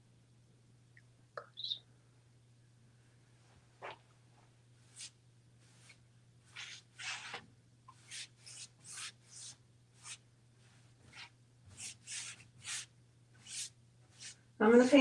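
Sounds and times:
paintbrush strokes on wood: 4.8 - 14.4.

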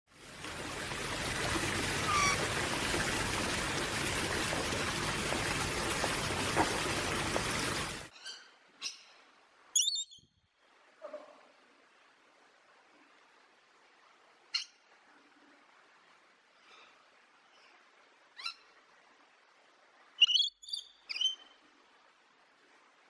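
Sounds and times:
faint bird chirp: 8.1 - 9.2, 9.8 - 10.4, 20.2 - 21.6.

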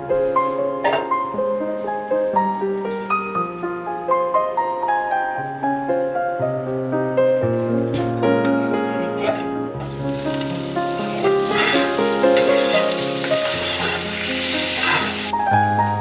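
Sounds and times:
piano music: 0.0 - 16.0
vegetables sizzling in skillet: 9.8 - 15.4
spatula stirring: 10.9 - 15.3.

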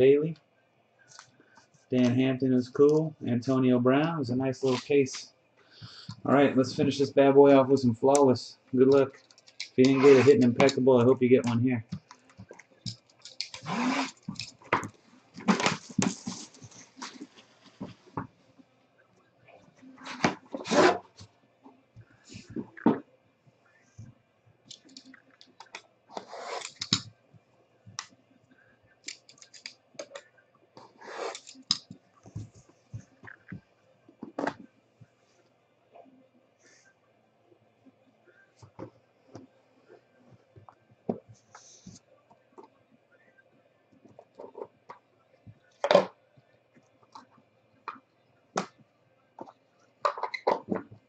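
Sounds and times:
box cutter scraping along case: 9.9 - 10.5.

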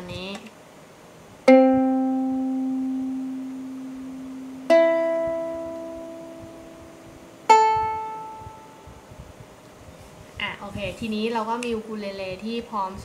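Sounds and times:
ukulele strings plucked: 1.5 - 8.8.

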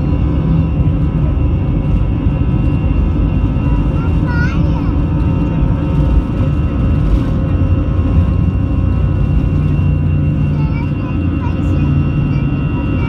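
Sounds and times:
jet engines low rumble: 0.0 - 13.0
whining engine tones: 0.0 - 13.0.

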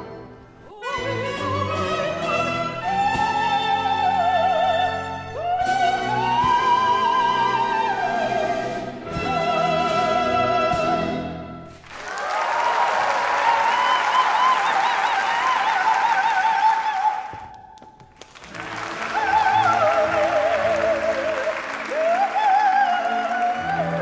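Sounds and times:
operatic soprano singing: 0.0 - 11.6, 13.4 - 17.7, 18.6 - 24.0
symphony orchestra: 0.0 - 17.3, 18.4 - 24.0.

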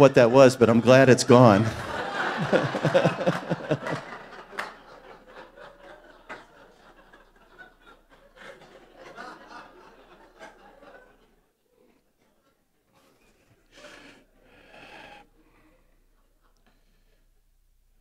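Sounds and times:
man laughing: 1.6 - 4.1.

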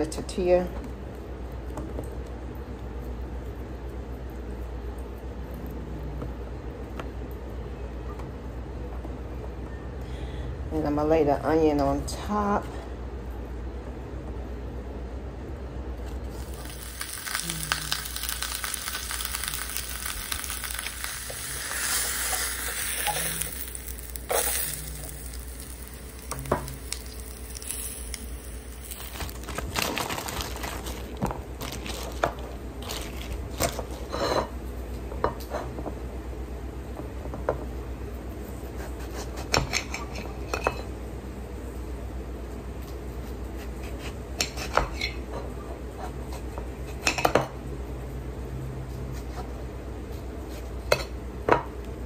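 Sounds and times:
steady low hum: 12.6 - 39.3
food sizzling in frying pan: 16.2 - 32.4.

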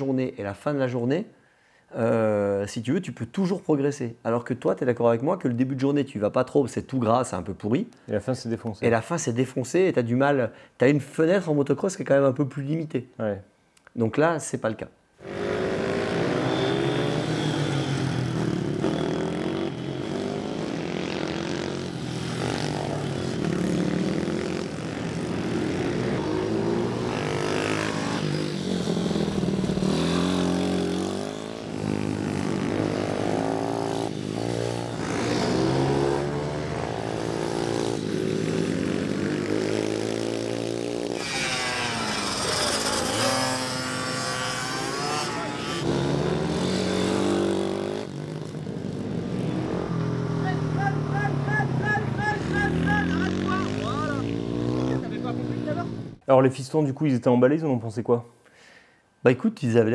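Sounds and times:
high-pitched engine whine: 15.2 - 40.4, 41.0 - 52.0
small motorcycle engines revving: 15.2 - 56.2.

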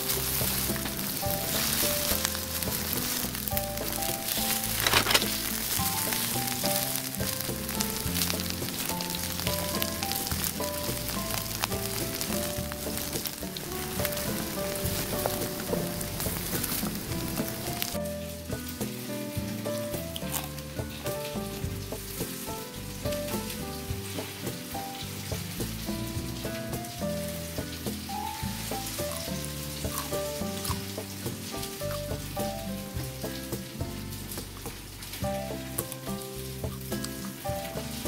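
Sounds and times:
steady hiss: 0.0 - 38.0.

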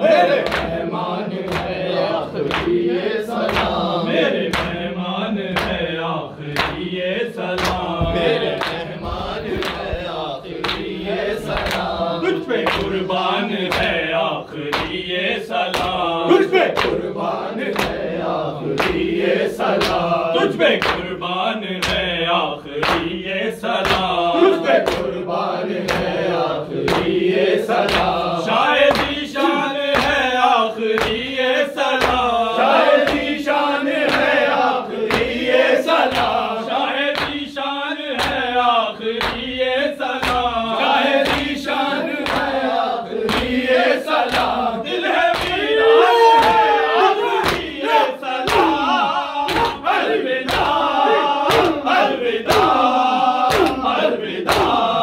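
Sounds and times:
men chanting in unison: 0.0 - 55.0
chest-beating slaps: 4.5 - 4.8, 6.5 - 6.9, 7.6 - 13.1, 26.8 - 27.2, 27.9 - 28.2, 28.9 - 29.3, 41.2 - 41.6, 47.4 - 47.8, 48.4 - 48.8, 49.5 - 54.9.

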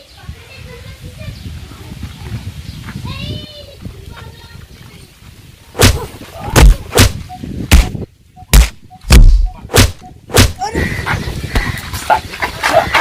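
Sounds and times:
punches with heavy thuds: 5.8 - 10.7.

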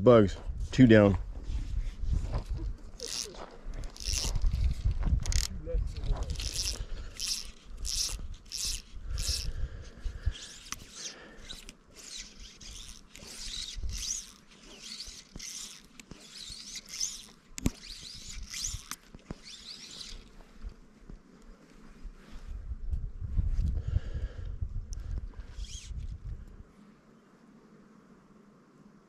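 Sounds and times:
fly line zipping through rod guides: 1.4 - 21.0, 25.4 - 26.2.

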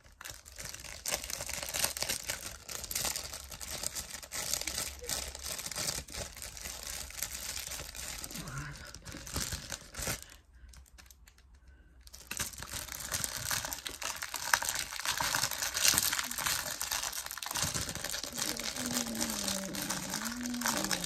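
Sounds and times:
plastic wrapping crinkling and tearing: 0.0 - 21.0.

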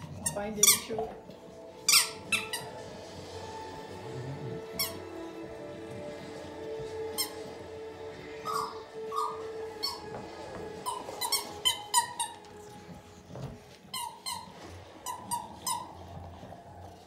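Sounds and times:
squeaky rubber dog toys: 0.0 - 1.1, 1.8 - 2.9, 4.6 - 5.2, 7.0 - 17.0.

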